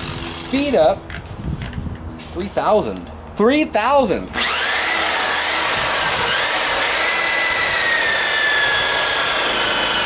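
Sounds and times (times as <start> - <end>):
rotary buffer motor whine: 4.4 - 10.0.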